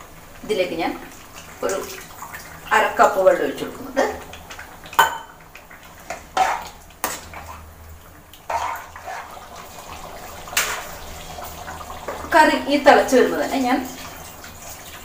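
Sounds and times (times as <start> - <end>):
sharp knocks against pan: 5.0 - 5.3
water pouring into curry: 8.3 - 12.4.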